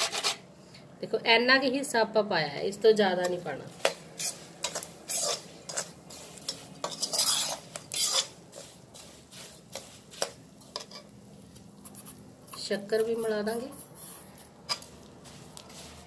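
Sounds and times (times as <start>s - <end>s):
metal spoon scraping iron pan: 4.2s - 8.6s, 9.7s - 11.1s.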